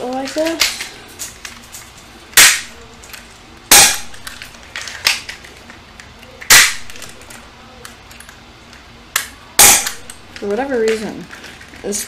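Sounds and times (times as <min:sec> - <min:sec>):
airsoft pistol shots: 0:02.4 - 0:02.8, 0:03.7 - 0:04.3, 0:06.5 - 0:07.0, 0:09.6 - 0:10.2.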